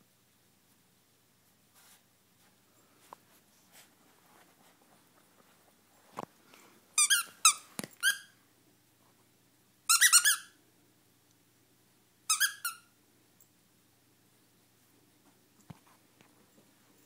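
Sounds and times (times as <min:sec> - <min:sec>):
toy squeaker squeaks: 0:07.0 - 0:08.3, 0:09.9 - 0:10.5, 0:12.3 - 0:12.9.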